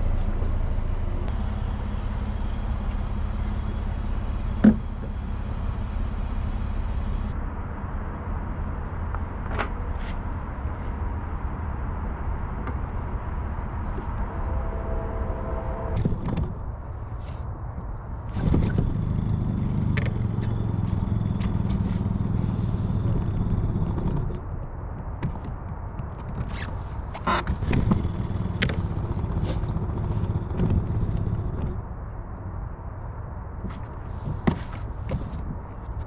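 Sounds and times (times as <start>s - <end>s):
outboard motor idling: 13.9s - 16.6s, 18.4s - 24.4s, 27.2s - 31.8s.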